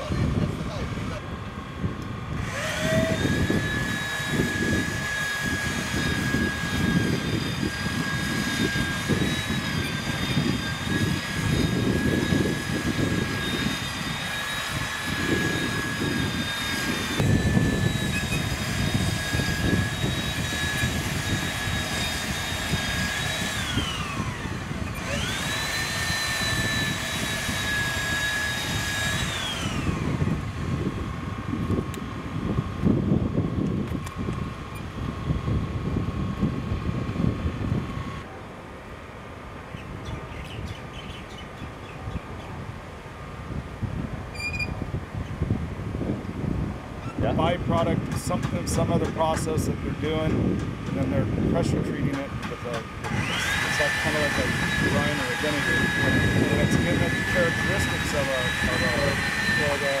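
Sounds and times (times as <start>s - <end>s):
power tool motor whining: 0.0s - 32.9s, 47.0s - 60.0s
wind on microphone: 0.0s - 38.8s, 39.5s - 60.0s.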